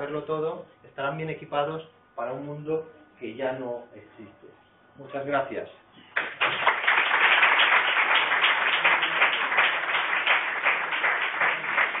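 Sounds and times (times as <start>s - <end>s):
audience clapping: 6.1s - 12.0s.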